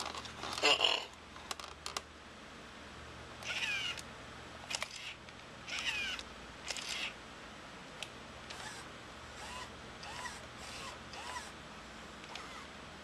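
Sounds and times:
toy robot gear motors whirring: 3.4 - 4.0, 4.7 - 7.2, 8.5 - 11.6, 12.2 - 12.7.

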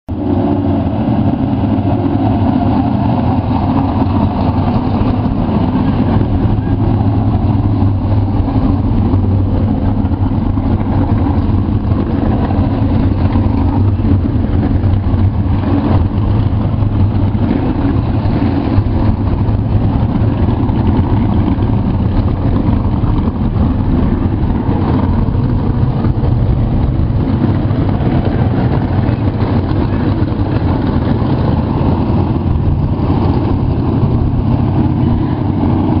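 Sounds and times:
race car engines idling: 0.1 - 36.0.

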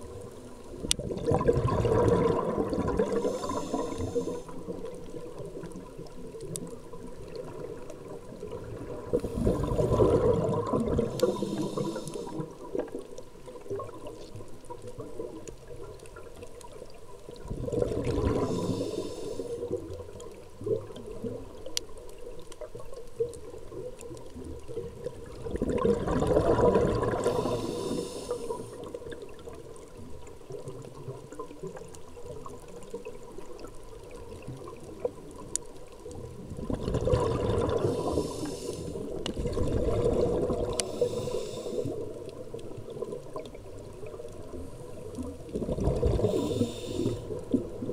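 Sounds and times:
underwater hiss: 1.1 - 5.1, 7.2 - 13.0, 17.4 - 20.0, 25.5 - 29.2, 36.8 - 43.5, 44.1 - 47.9
diver exhaling through regulator: 1.4 - 4.6, 9.1 - 12.5, 17.8 - 19.7, 26.0 - 28.8, 37.0 - 39.1, 39.8 - 42.0, 45.7 - 47.4.

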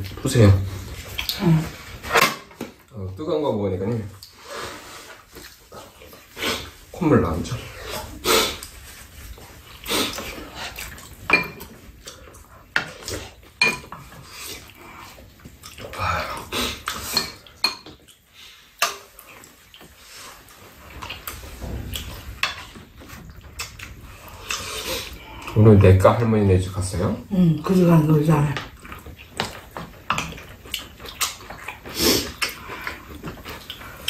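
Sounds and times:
eating noises: 0.0 - 2.2, 7.6 - 26.3, 27.6 - 34.0
utensils clinking against bowls: 11.3 - 11.8, 13.6 - 14.2.

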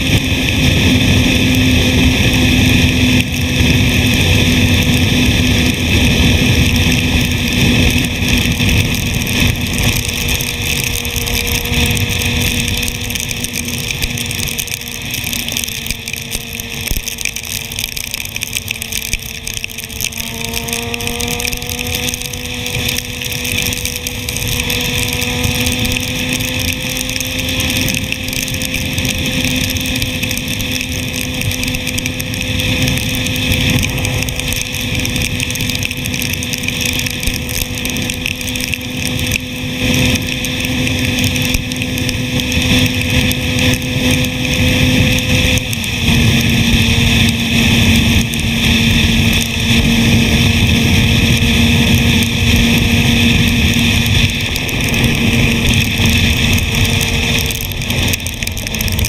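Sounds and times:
motorcycle engine cruising: 0.0 - 59.0
wind rushing: 32.4 - 36.3.

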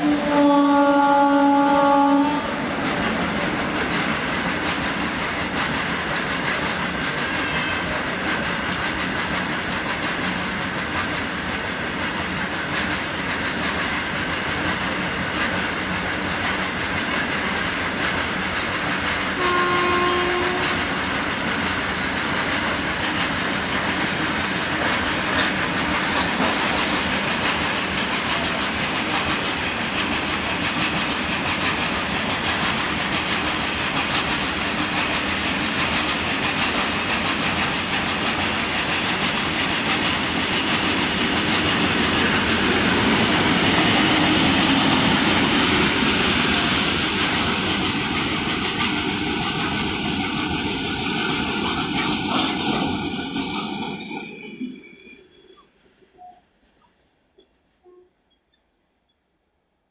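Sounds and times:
train hoot: 0.0 - 3.5, 6.7 - 8.8, 19.2 - 21.2, 57.8 - 58.2
freight train rumbling past: 0.0 - 56.8.

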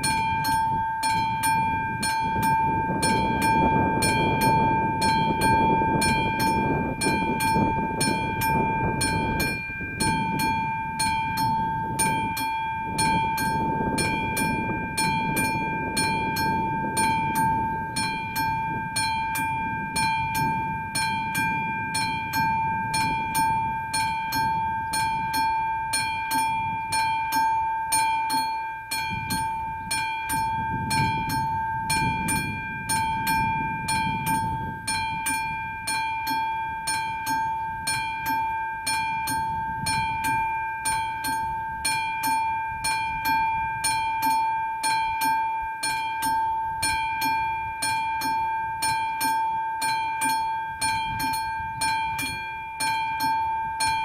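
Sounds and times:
level-crossing bell ringing: 0.0 - 54.0.

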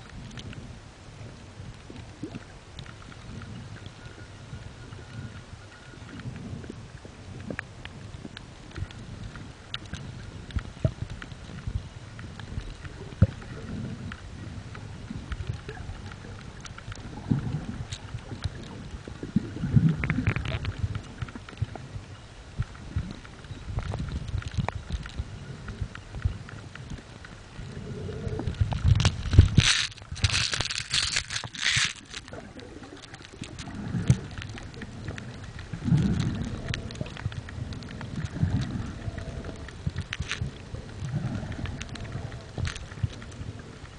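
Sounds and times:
sharp clicks and crackles: 0.0 - 0.7, 1.6 - 43.9
underwater rumble of moving water: 0.0 - 43.9.

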